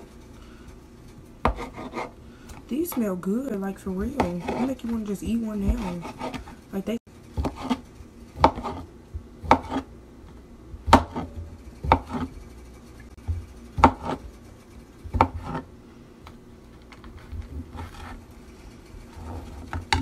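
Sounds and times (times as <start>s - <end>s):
knife chopping on cutting board: 1.4s - 2.1s, 3.9s - 6.5s, 7.4s - 7.8s, 8.4s - 9.9s, 10.8s - 12.3s, 13.3s - 14.2s, 15.1s - 15.6s.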